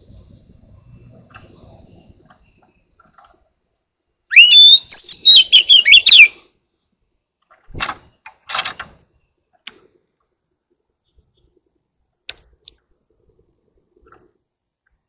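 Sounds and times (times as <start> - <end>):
bird singing whistled notes: 4.3 - 6.4
harsh rasping bird calls: 4.3 - 6.5.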